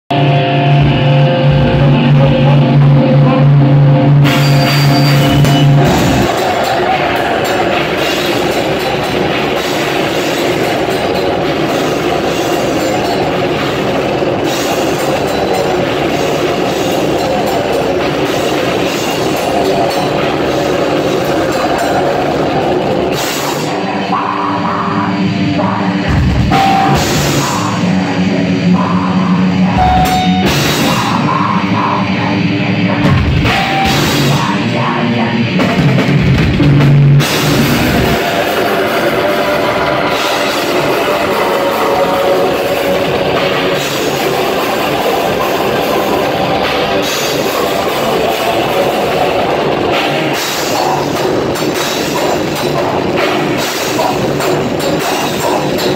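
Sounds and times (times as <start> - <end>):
distorted electric guitars: 0.0 - 55.9
drum kit: 0.1 - 55.9.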